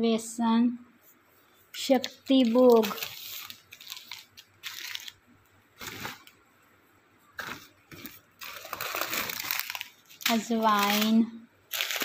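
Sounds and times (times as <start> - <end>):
plastic bags crinkling: 1.8 - 6.4, 7.4 - 12.0.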